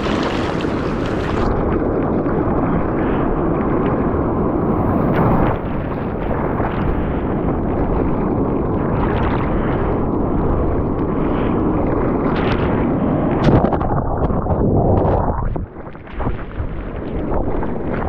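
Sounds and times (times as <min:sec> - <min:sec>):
whitewater rushing and splashing: 0:00.0 - 0:01.5
wind buffeting microphone: 0:00.0 - 0:18.0.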